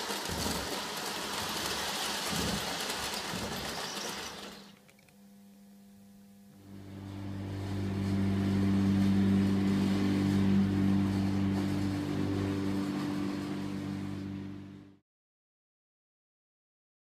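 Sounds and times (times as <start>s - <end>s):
toy motor humming: 0.0s - 4.8s.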